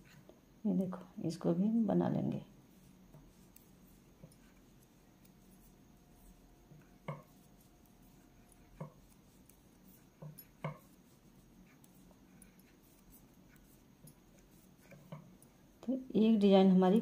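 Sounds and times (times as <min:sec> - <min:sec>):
knitting needles clicking: 0:03.2 - 0:15.6.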